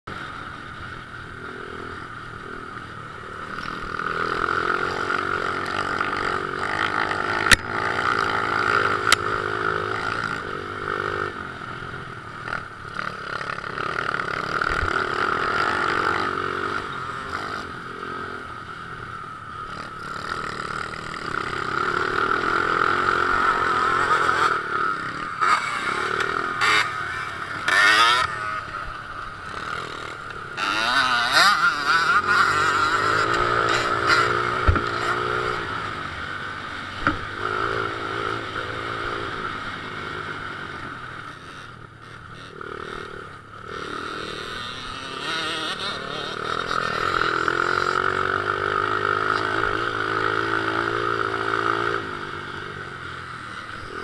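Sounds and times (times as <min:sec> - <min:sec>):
second dirt bike engine revving: 0:00.1 - 0:54.0
dirt bike engine running: 0:12.3 - 0:52.7.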